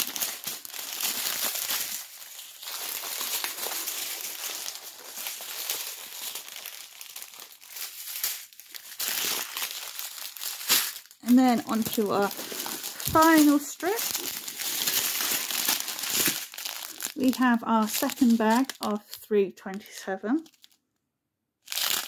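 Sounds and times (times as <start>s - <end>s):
plastic bags crinkling: 0.0s - 20.8s, 21.7s - 22.0s.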